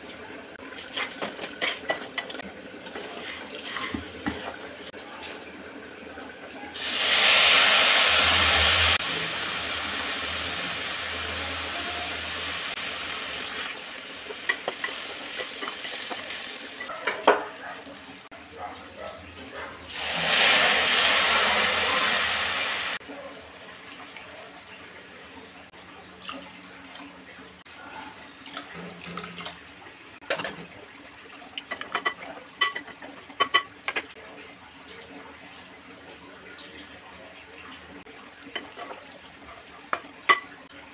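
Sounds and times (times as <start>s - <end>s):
wooden spatula scraping pot: 0.8s - 4.7s
milk sizzling in hot pot: 6.7s - 18.3s, 19.8s - 24.3s
utensil clinking in metal pot: 14.4s - 17.6s.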